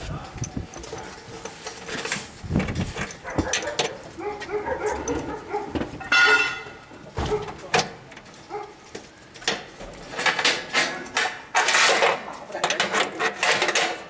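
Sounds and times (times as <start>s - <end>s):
metal connectors clicking and scraping: 0.2s - 4.1s, 9.3s - 14.0s.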